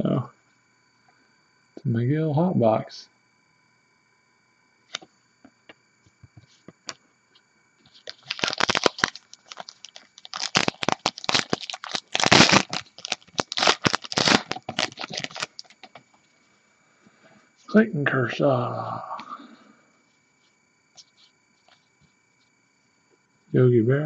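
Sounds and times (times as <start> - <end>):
foil wrapper crinkling and tearing: 7.9 - 16.0.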